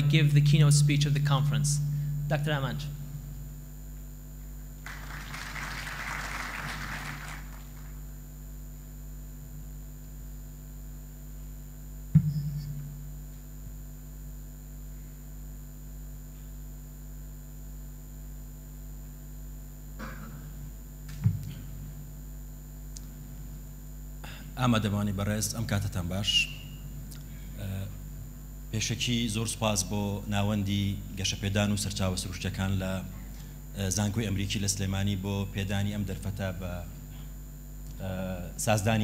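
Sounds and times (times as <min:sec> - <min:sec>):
electrical hum through speakers: 0:00.0 - 0:39.0
audience applause: 0:04.8 - 0:08.0
thump on microphone: 0:12.1 - 0:12.9, 0:21.1 - 0:21.6.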